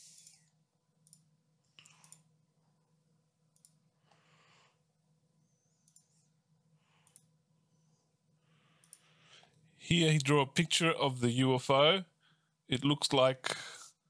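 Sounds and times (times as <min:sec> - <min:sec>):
computer mouse clicks: 0:00.0 - 0:02.3, 0:03.5 - 0:03.9, 0:05.7 - 0:06.3, 0:07.0 - 0:07.3, 0:08.8 - 0:09.6.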